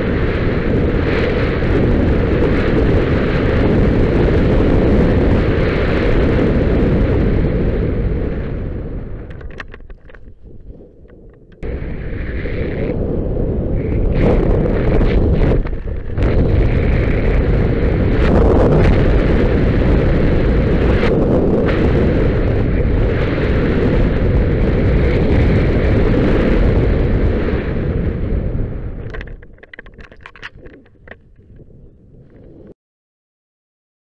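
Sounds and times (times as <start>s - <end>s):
wind buffeting microphone: 0.0s - 32.8s
short crackles: 9.2s - 13.1s, 13.7s - 19.2s, 29.0s - 32.8s.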